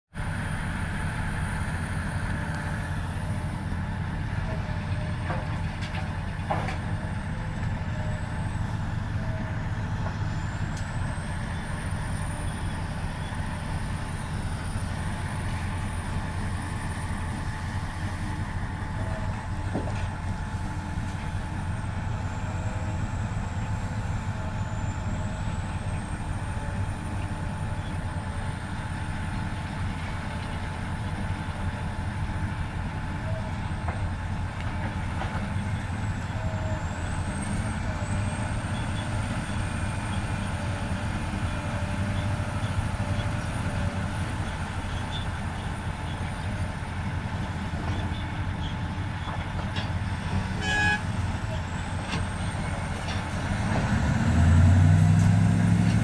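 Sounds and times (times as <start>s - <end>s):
dump truck diesel engine: 0.1s - 56.0s
excavator diesel engine under load: 0.2s - 56.0s.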